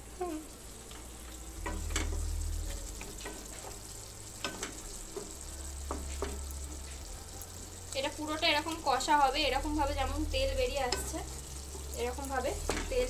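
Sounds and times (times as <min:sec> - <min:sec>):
steady sizzle: 0:00.0 - 0:13.0
low rumble: 0:01.4 - 0:04.4, 0:06.6 - 0:13.0
spatula scraping and tapping pan: 0:01.6 - 0:07.0.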